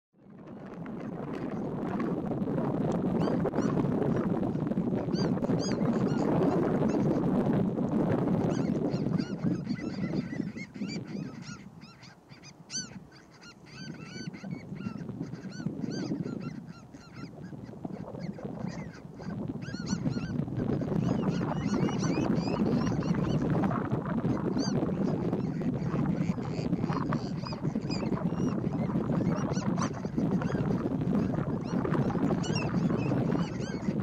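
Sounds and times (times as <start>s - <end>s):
birds calling: 5.0s - 7.2s, 8.4s - 23.6s, 24.3s - 34.0s.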